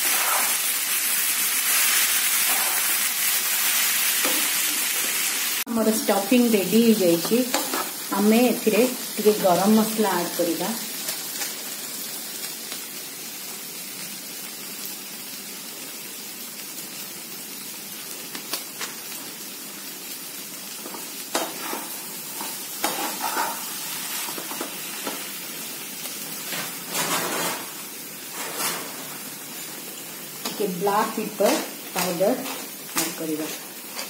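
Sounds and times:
stuffing sizzling in a pan: 0.0s - 34.0s
steel spatula scraping a pan: 2.4s - 3.0s, 21.3s - 24.6s, 26.5s - 29.2s.

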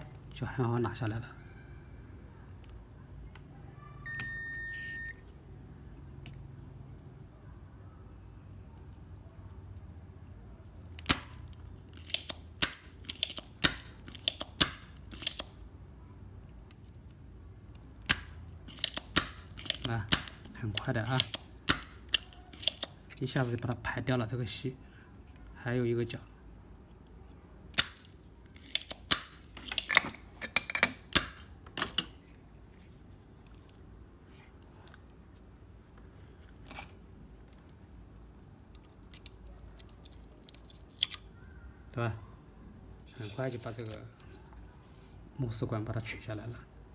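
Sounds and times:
sharp clicks and knocks of tools: 11.0s - 15.6s, 18.0s - 23.0s, 27.7s - 32.2s
desoldering pump snapping: 12.0s - 15.5s, 18.0s - 23.0s, 27.7s - 30.1s.

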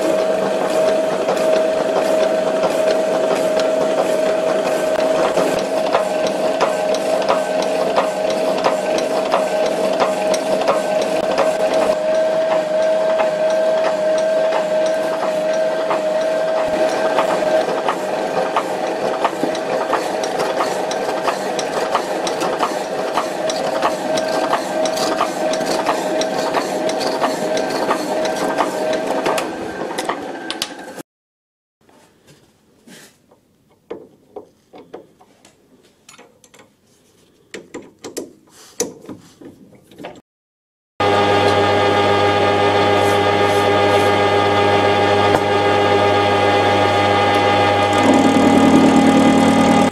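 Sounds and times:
power hacksaw machine hum: 0.0s - 31.0s, 41.0s - 49.9s.

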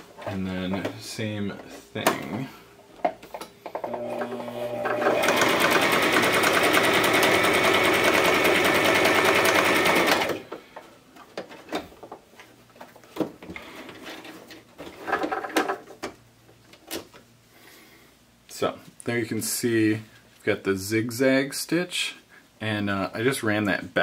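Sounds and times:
sewing machine stitching: 3.9s - 10.5s.

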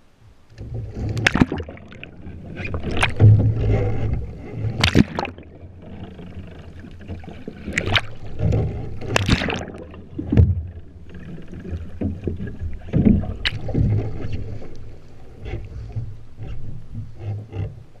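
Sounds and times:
water churning and splashing: 0.6s - 18.0s
sharp water splashes: 1.2s - 3.5s, 4.8s - 5.6s, 7.2s - 8.5s, 9.1s - 10.6s.

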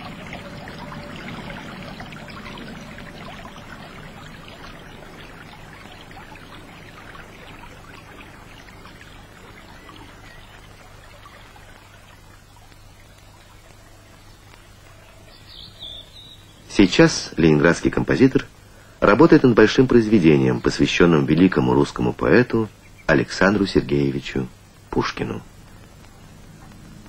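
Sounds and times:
water trickling onto stone: 0.0s - 17.0s.

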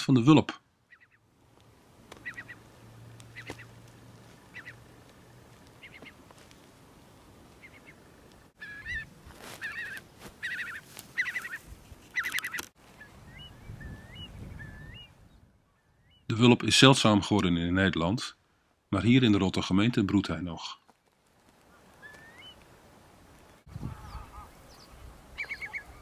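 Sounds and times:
curlew calling: 0.8s - 1.3s, 2.1s - 6.2s, 7.5s - 16.3s, 21.6s - 22.7s, 23.7s - 26.0s.

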